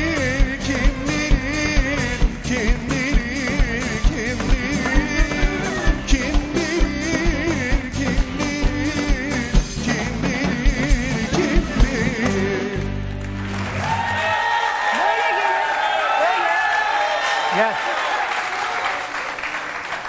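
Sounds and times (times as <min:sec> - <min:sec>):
steady drum beat: 0:00.0 - 0:12.6.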